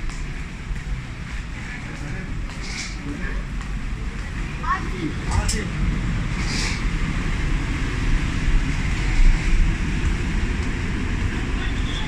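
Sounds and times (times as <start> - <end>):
airy hiss: 6.3 - 7.1.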